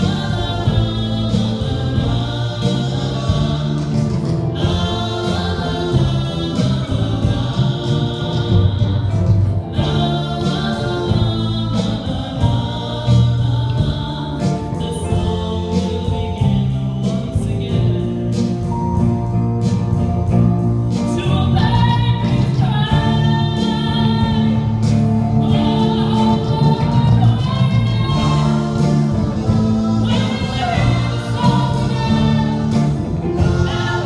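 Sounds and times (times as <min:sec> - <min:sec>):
woman singing: 0:00.0 - 0:04.0, 0:04.6 - 0:18.7, 0:21.0 - 0:34.0
backing vocals: 0:00.0 - 0:18.1, 0:25.4 - 0:34.0
live band playing slow song: 0:00.0 - 0:34.0.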